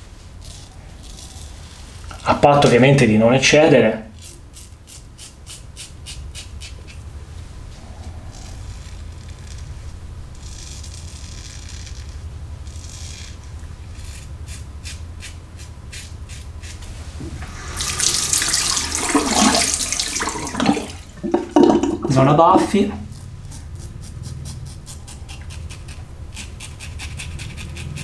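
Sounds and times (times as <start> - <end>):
razor scraping stubble: 0.2 - 3.4, 4.1 - 19.0, 22.0 - 28.0
tap running into sink: 17.2 - 22.2.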